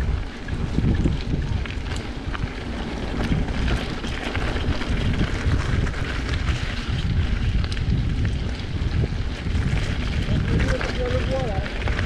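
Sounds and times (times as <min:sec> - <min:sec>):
bike rattling clicks: 0:00.0 - 0:12.0
tyres crunching on gravel: 0:00.0 - 0:12.0
wind buffeting microphone: 0:00.0 - 0:12.0.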